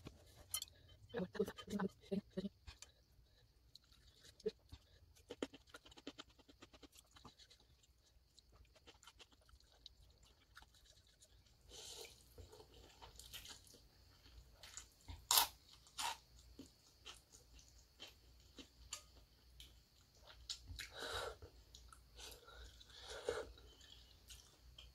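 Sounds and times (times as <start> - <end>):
quiet chewing clicks: 0.1 - 24.9
crunchy vegetable bite: 14.6 - 16.4.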